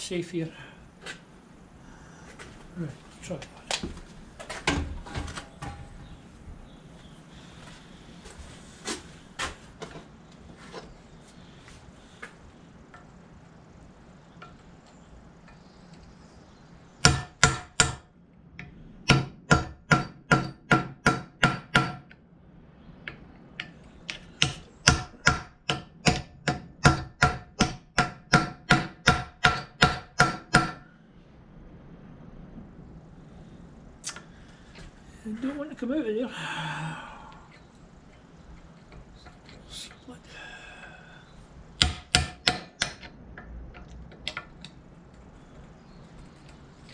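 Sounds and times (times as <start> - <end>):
hammer striking steel punch: 17.0 - 18.0, 19.0 - 22.1, 24.4 - 30.8, 41.8 - 43.1.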